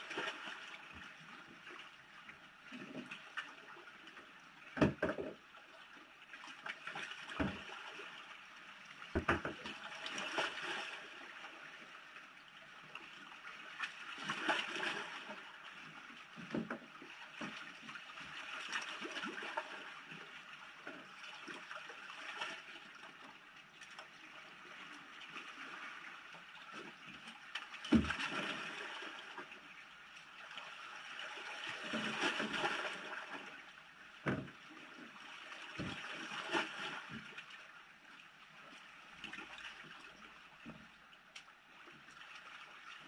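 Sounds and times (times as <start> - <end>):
dull knocks on plastic kayak: 4.8 - 5.4, 9.1 - 9.6, 34.2 - 34.6.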